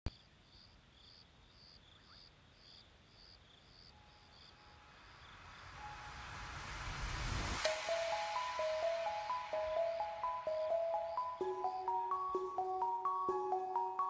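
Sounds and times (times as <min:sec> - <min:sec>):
crickets chirping: 0:00.1 - 0:14.0
soft sustained music note: 0:04.0 - 0:14.0.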